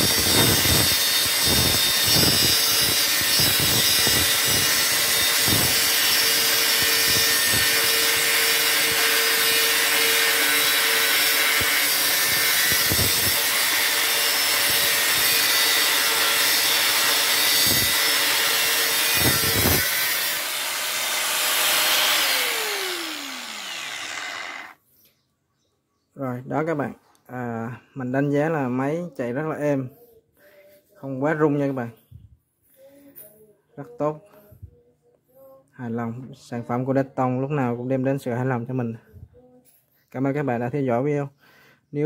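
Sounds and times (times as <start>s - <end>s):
angle grinder cutting metal: 0.0s - 24.8s
grinder motor winding down: 15.8s - 24.8s.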